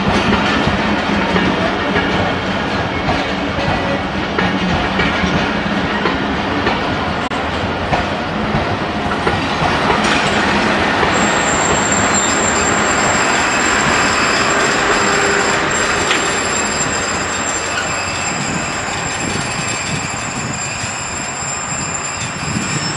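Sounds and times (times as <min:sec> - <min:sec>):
train wheels rumbling on rails: 0:00.0 - 0:22.9
high-pitched wheel squeal: 0:11.2 - 0:22.9.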